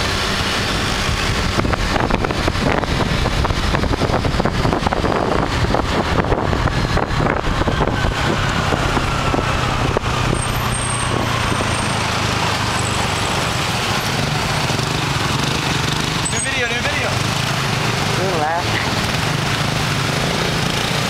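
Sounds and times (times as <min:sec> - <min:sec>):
road noise: 0:00.0 - 0:21.0
wind buffeting microphone: 0:00.2 - 0:12.7.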